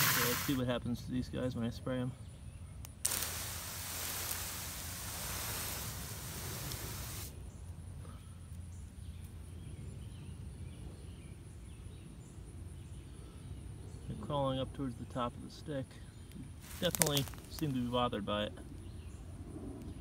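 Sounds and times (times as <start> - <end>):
sprayer hissing: 0.0 - 0.6, 3.0 - 7.3, 16.6 - 17.6
thin high whine: 0.0 - 0.6.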